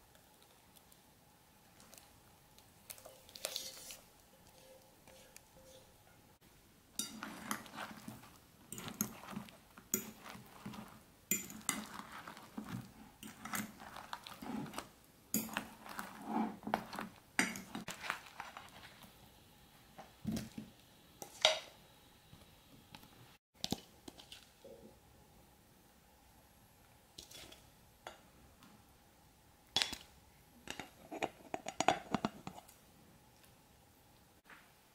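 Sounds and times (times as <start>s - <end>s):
metal spoon clinking on bowl: 7.0s - 12.4s, 15.3s - 16.2s.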